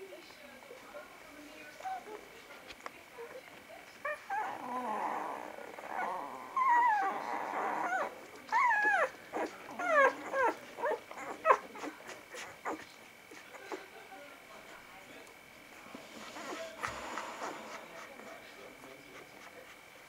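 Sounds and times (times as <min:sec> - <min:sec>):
puppies whimpering and squeaking: 0:04.0 - 0:13.9, 0:16.0 - 0:18.4.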